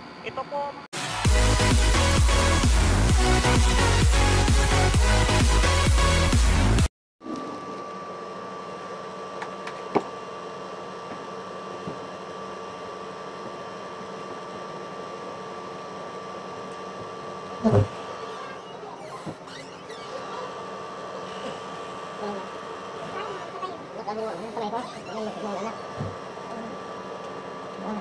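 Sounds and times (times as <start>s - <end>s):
electrical hum: 0.0s - 28.0s
electronic dance music: 1.0s - 6.9s.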